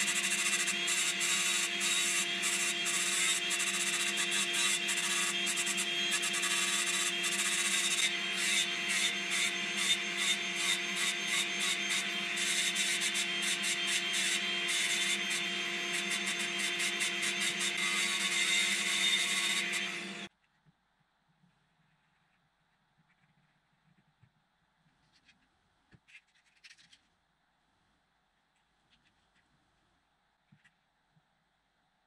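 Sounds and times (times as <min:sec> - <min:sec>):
angle grinder grinding wood: 0:00.0 - 0:20.3.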